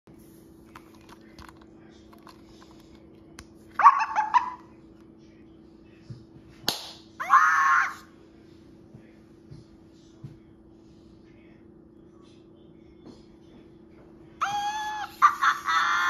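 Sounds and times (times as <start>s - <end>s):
faint steady hum: 0.1s - 16.0s
toy high-pitched electronic voice: 14.4s - 16.0s.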